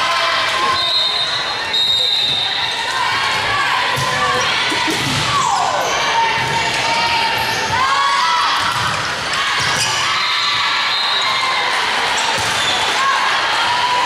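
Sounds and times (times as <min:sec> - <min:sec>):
chatter and calls echoing: 0:00.0 - 0:14.0
balls hit and bouncing: 0:06.3 - 0:10.1, 0:12.1 - 0:12.8.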